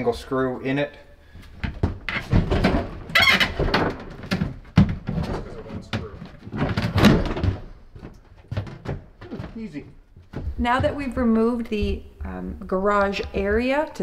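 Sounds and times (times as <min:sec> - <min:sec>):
knocks clunks and scrapes of cabinet: 0:01.6 - 0:09.6.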